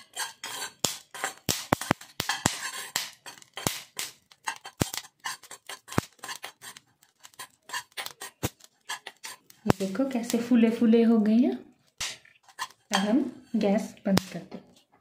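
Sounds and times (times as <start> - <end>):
seeds rattling in a steel pan: 0.0 - 10.5.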